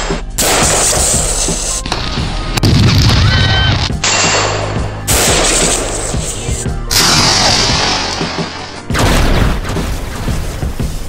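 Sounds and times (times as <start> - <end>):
background music: 0.0 - 11.0
loud gunfire and booms: 2.1 - 6.3, 8.9 - 11.0.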